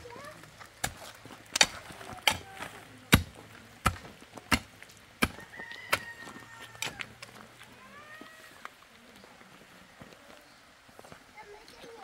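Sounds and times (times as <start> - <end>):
pickaxe striking stony ground: 0.8 - 7.0.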